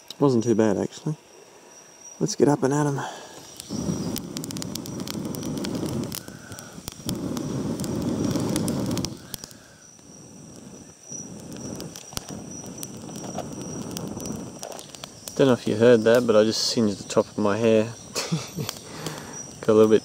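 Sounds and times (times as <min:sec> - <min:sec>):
twig fire crackling and popping: 0:00.0 - 0:20.0
person blowing on fire: 0:03.0 - 0:15.4, 0:18.0 - 0:19.6.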